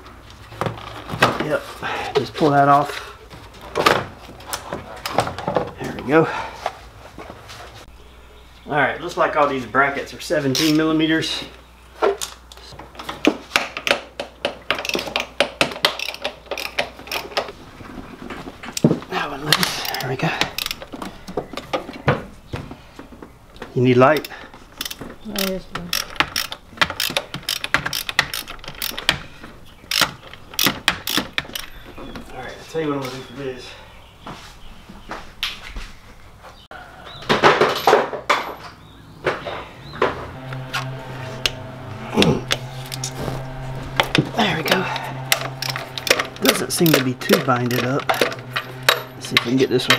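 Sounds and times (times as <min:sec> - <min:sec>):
socket ratchet clicking: 0:14.7 - 0:17.5, 0:19.8 - 0:21.0, 0:24.1 - 0:29.2, 0:29.9 - 0:31.8
hand tools clanking on metal: 0:19.5 - 0:22.1, 0:44.1 - 0:49.9
steady low hum: 0:38.8 - 0:49.9.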